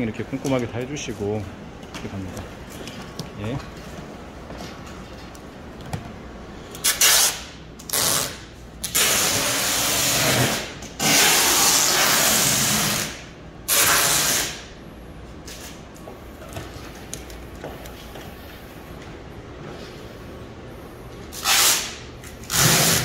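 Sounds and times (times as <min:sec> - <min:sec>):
packing tape pulled off roll: 0:06.7 - 0:14.7, 0:21.3 - 0:23.0.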